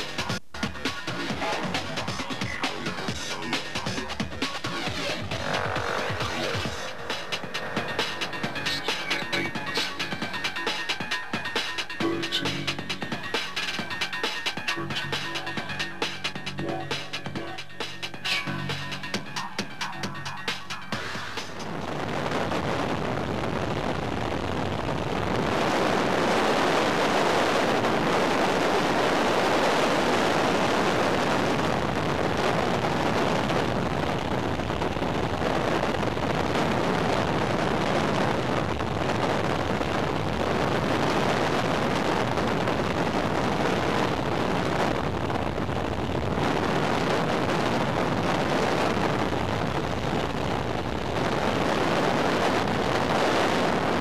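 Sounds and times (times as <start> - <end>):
wind rushing over microphone: 20.9 - 54.0.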